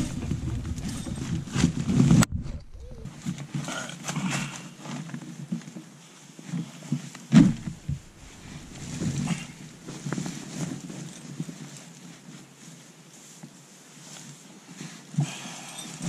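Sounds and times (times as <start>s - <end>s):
air mattress creaking: 0.0s - 3.1s, 7.4s - 10.5s
bump: 0.0s - 3.1s, 7.4s - 10.2s
bedding rustling: 0.0s - 3.2s, 7.3s - 12.8s.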